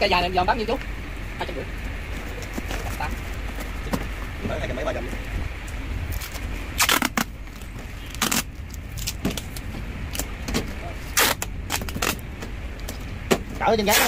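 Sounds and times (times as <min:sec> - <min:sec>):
tape crackling: 0:05.6 - 0:14.0
packing tape pulled off roll: 0:06.1 - 0:07.3, 0:08.1 - 0:10.3, 0:11.1 - 0:12.2.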